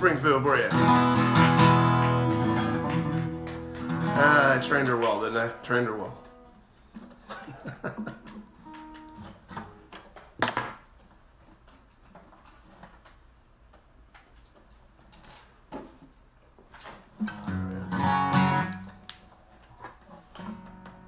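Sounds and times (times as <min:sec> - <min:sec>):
acoustic guitar chord strummed: 0:00.0 - 0:06.6, 0:17.2 - 0:19.5, 0:20.4 - 0:21.0.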